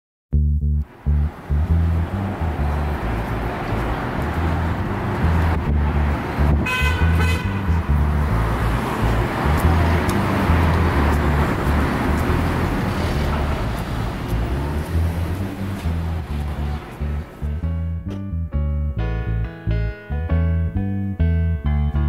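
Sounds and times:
city street traffic: 0:00.3 - 0:22.0
car horn: 0:06.4 - 0:08.0.

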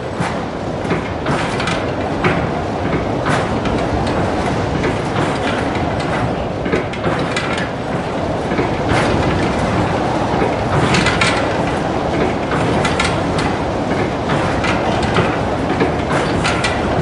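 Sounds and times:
metallic clanks and rattles: 0:10.4 - 0:17.0.

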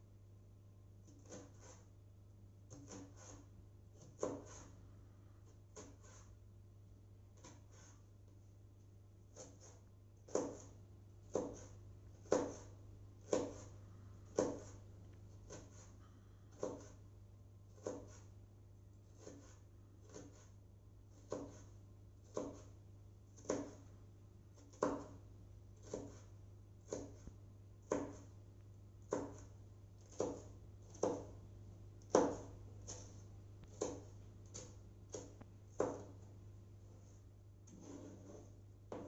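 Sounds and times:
knife chopping on wooden board: 0:01.0 - 0:01.9, 0:02.7 - 0:04.8, 0:05.7 - 0:06.3, 0:09.3 - 0:14.8, 0:15.4 - 0:15.9, 0:16.5 - 0:17.0, 0:17.7 - 0:18.3, 0:19.1 - 0:23.9, 0:24.5 - 0:25.2, 0:25.8 - 0:28.3, 0:29.0 - 0:31.4, 0:32.0 - 0:36.3, 0:36.9 - 0:39.0.

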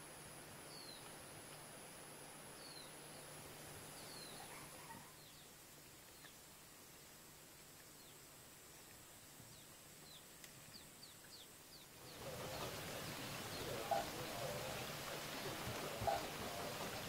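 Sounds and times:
outdoor hiss: 0:00.0 - 0:17.0
small birds chirping: 0:00.6 - 0:01.4, 0:02.5 - 0:06.5, 0:07.9 - 0:17.0
lower bird calls: 0:02.5 - 0:06.4, 0:09.5 - 0:17.0.

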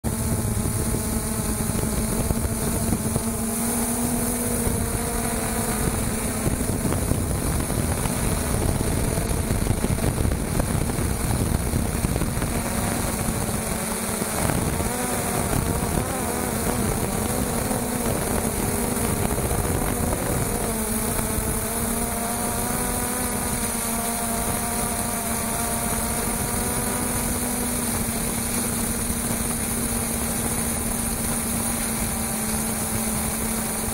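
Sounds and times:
quadcopter motors buzzing: 0:00.0 - 0:33.9.

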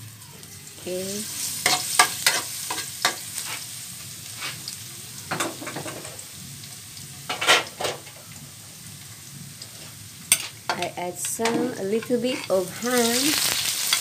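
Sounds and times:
garlic sizzling in hot oil: 0:00.0 - 0:14.0
metal spatula scraping pan: 0:11.3 - 0:14.0.

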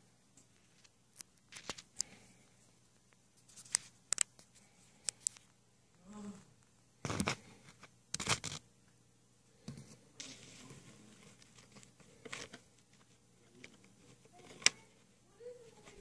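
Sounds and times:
plastic crinkling and rustling: 0:00.6 - 0:02.1.

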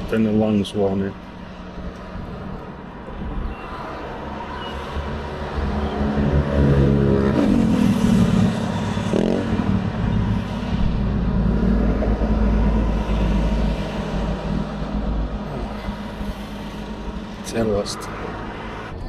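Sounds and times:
road traffic passing: 0:00.0 - 0:19.0
vehicle passing by: 0:01.0 - 0:19.0
heavy low engine rumble: 0:08.0 - 0:19.0.

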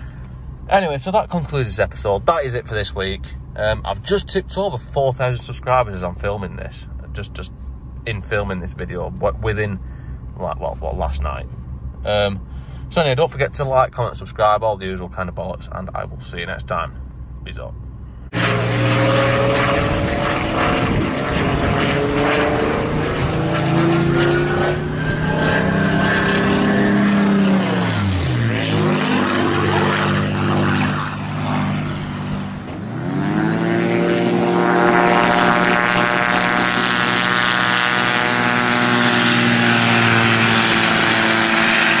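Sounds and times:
car engine accelerating hard: 0:18.2 - 0:42.0.

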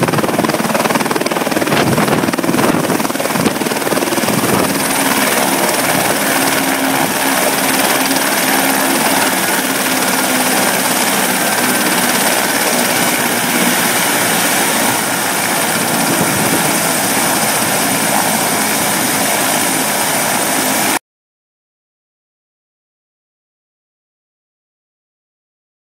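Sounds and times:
helicopter rotor noise: 0:00.0 - 0:21.0
helicopter turbine whine: 0:00.0 - 0:21.0.

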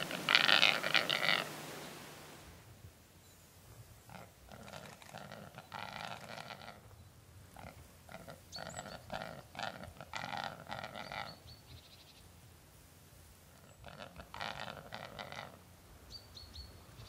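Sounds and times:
grouse rough display calls: 0:00.0 - 0:02.3, 0:04.1 - 0:11.4, 0:13.6 - 0:15.7.

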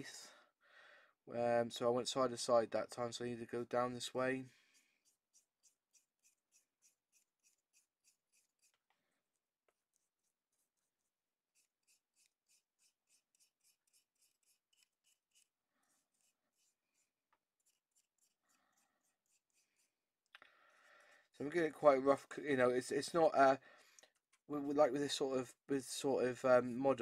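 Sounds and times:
paintbrush strokes on plastic: 0:03.6 - 0:21.9.

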